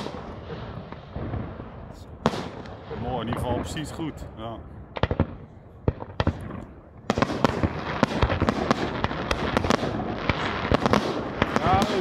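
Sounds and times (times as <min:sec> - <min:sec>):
fireworks bangs: 0:00.0 - 0:12.0
fireworks crackling: 0:00.0 - 0:12.0.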